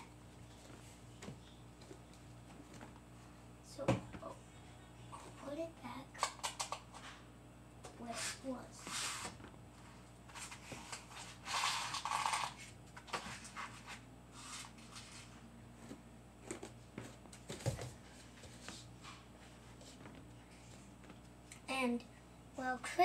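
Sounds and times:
rustling and handling things: 0:00.0 - 0:04.4, 0:07.9 - 0:21.4
rustling sliding noise: 0:08.0 - 0:16.0.

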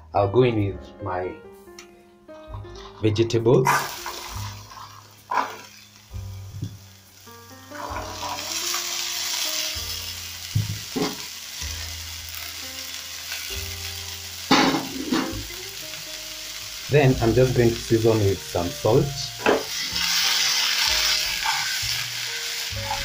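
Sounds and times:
pieces clattering into pan: 0:02.5 - 0:06.8, 0:07.7 - 0:11.4, 0:14.4 - 0:16.0, 0:19.3 - 0:23.0
vegetables sizzling in hot oil: 0:03.6 - 0:23.0.

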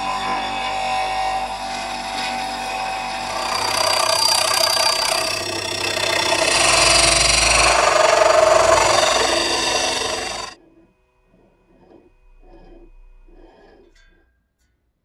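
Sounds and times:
bench grinder running: 0:00.0 - 0:10.6
file scraping spinning metal pulley: 0:00.0 - 0:14.2.

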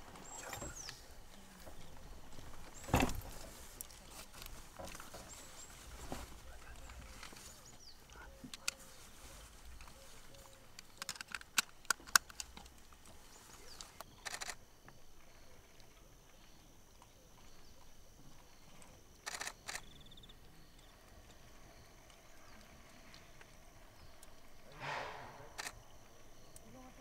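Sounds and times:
camera shutters clicking: 0:14.2 - 0:14.6, 0:19.2 - 0:19.9.

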